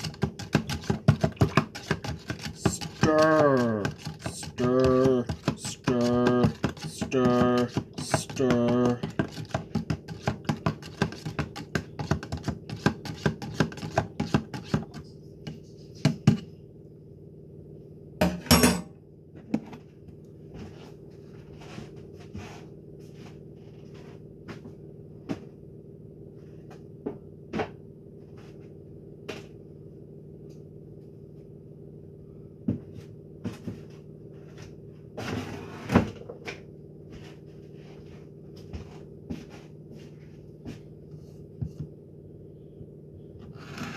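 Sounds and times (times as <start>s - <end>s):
spoon stirring in a cup: 0.0s - 15.0s
low hum: 40.1s - 43.9s.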